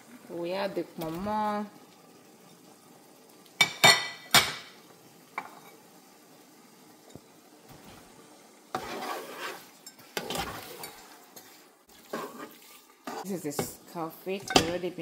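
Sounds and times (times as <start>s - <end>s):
scraping and stirring thick stew: 7.1s - 15.0s.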